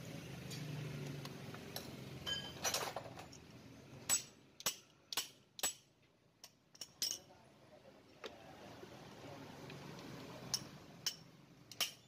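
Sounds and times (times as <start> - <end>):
metallic ring: 1.8 - 3.4.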